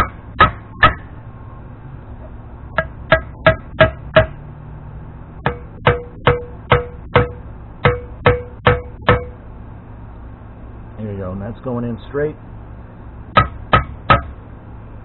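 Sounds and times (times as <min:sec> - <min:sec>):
hammer striking metal: 0:00.0 - 0:01.2, 0:02.7 - 0:04.5, 0:05.4 - 0:09.4, 0:13.4 - 0:14.4.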